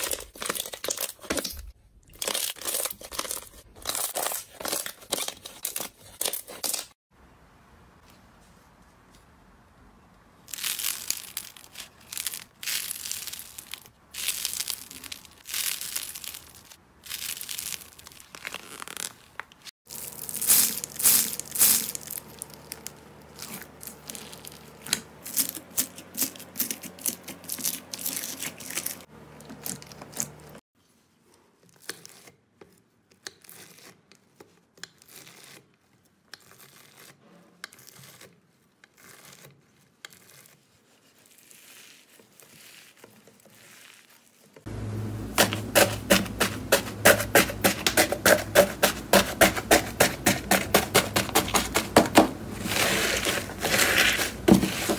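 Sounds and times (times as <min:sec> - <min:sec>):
crunching foam-bead slime: 0:00.0 - 0:07.0, 0:10.4 - 0:30.6, 0:36.4 - 0:44.7, 0:45.4 - 0:54.9
knife cutting slime crackling: 0:45.4 - 0:54.9.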